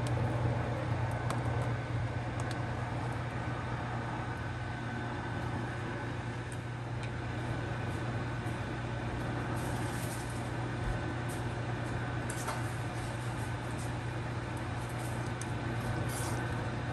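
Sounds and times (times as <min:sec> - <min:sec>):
kitchen appliance hum and whoosh: 0:00.0 - 0:16.9.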